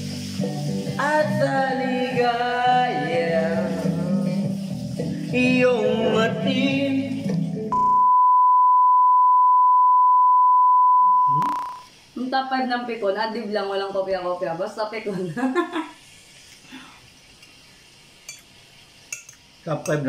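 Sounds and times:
man singing into microphone: 0:01.0 - 0:04.5, 0:05.3 - 0:07.5
high-pitched test tone beep: 0:07.7 - 0:11.9.

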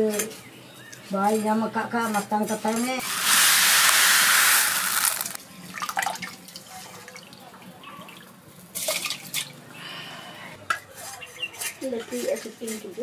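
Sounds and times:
rice dropped into metal pot: 0:03.0 - 0:05.4.

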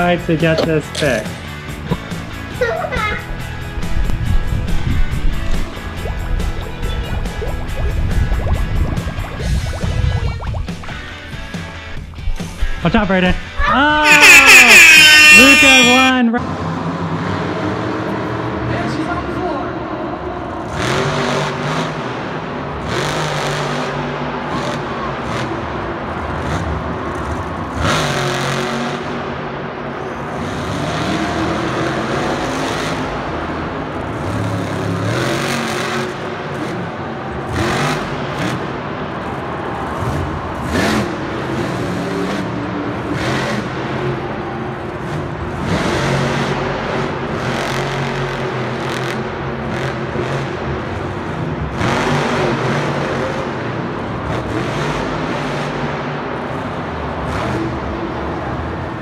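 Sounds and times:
truck engine revving: 0:20.6 - 0:29.4, 0:30.2 - 0:59.0.

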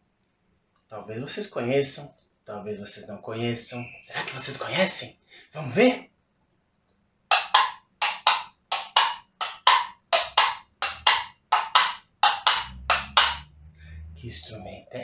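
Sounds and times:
coconut shells clip-clopping: 0:07.3 - 0:13.4.

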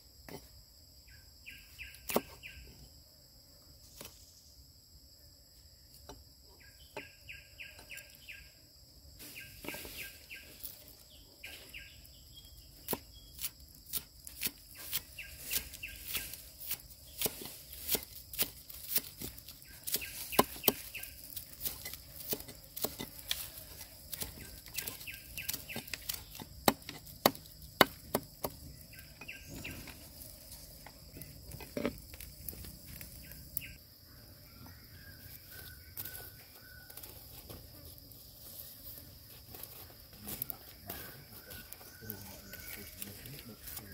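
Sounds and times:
high insect hiss: 0:00.0 - 0:43.9
cleaver chopping on wooden board: 0:02.1 - 0:02.4, 0:16.7 - 0:20.9, 0:21.6 - 0:23.2, 0:24.1 - 0:28.7
bird calling: 0:24.2 - 0:26.4, 0:28.6 - 0:30.1.

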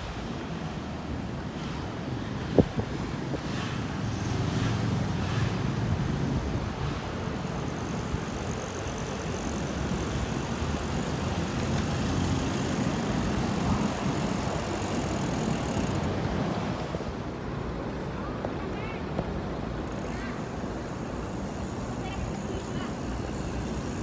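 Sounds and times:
wind rushing on microphone: 0:00.0 - 0:18.4
road noise: 0:00.0 - 0:24.0.

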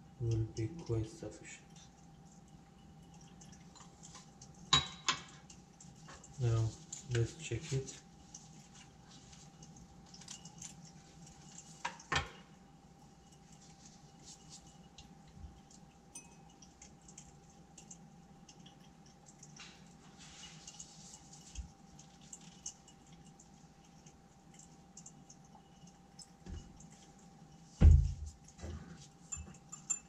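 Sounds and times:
faint steady hum: 0:00.0 - 0:30.0
glassware clinking: 0:04.7 - 0:05.5, 0:11.8 - 0:12.5, 0:16.1 - 0:16.7, 0:29.3 - 0:30.0.

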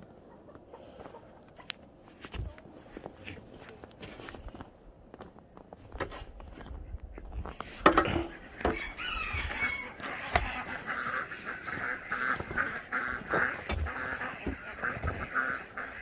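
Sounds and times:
footsteps in snow: 0:01.0 - 0:07.8, 0:08.4 - 0:16.0
ducks quacking: 0:06.6 - 0:16.0.

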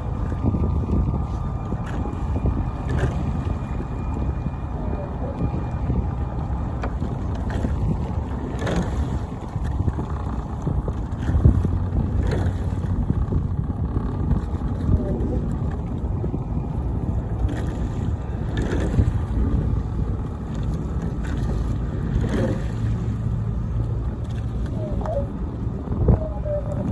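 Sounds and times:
low hum: 0:00.0 - 0:26.9
wind buffeting microphone: 0:00.0 - 0:26.9.

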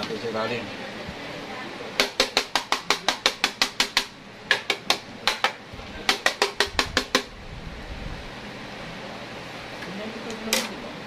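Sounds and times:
sharp taps on hard object: 0:02.0 - 0:07.3.

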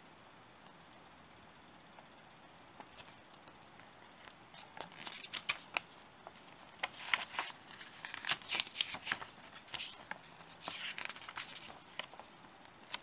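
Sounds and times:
paper rustling and crinkling: 0:02.8 - 0:03.2, 0:04.2 - 0:13.0.

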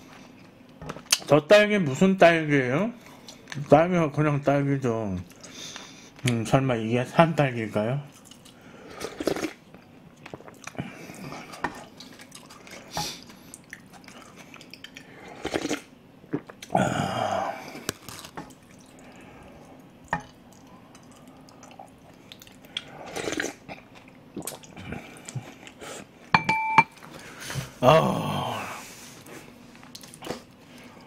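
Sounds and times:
chewing: 0:08.1 - 0:16.8, 0:17.8 - 0:26.3
person slurping soup: 0:08.8 - 0:09.6, 0:15.0 - 0:18.1, 0:22.8 - 0:23.8.

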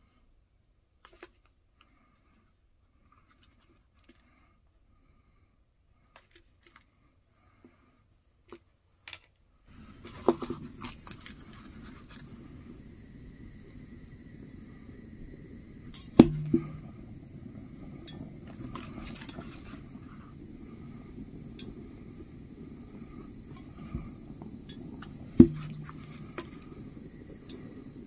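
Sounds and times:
torch flame rushing: 0:09.7 - 0:28.0.

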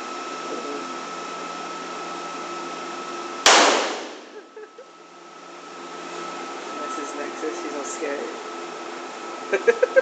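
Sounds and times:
ventilation hum with whistling tone: 0:00.0 - 0:10.0
pistol shot: 0:03.5 - 0:04.3.

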